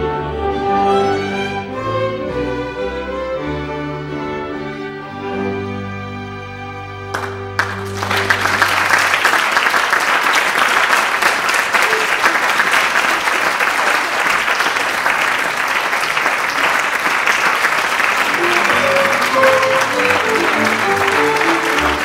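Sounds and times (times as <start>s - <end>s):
audience applauding: 7.1s - 22.0s
orchestra chord: 18.2s - 22.0s.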